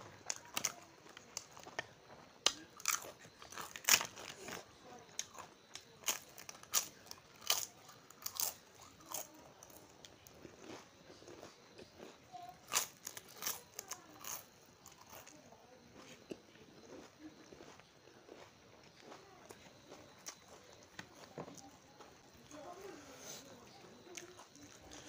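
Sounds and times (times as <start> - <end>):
person chewing crisp food: 0.0 - 25.0.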